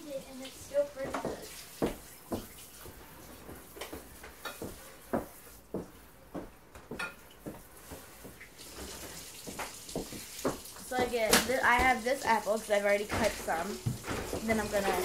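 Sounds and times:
kitchen knocks and clinks: 6.8s - 7.6s, 13.1s - 15.0s.

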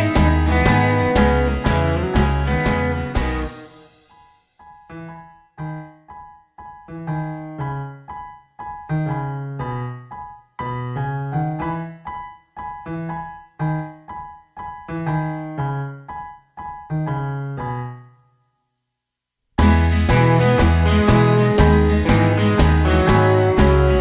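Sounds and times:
full music track: 0.0s - 5.0s, 19.6s - 24.0s
piano notes and chords: 0.0s - 18.5s, 19.6s - 24.0s.

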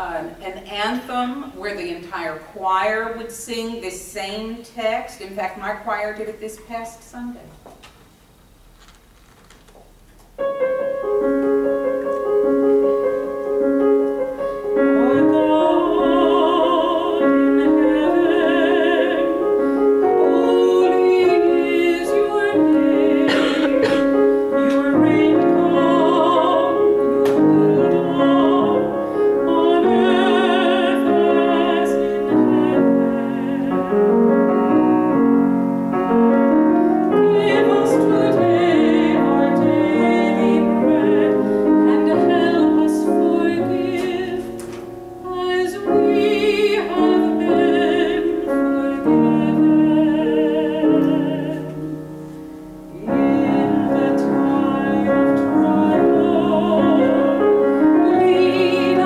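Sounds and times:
grand piano: 0.0s - 59.0s
woman singing with vibrato: 14.8s - 34.2s, 37.1s - 44.6s, 45.2s - 51.9s, 52.9s - 59.0s.

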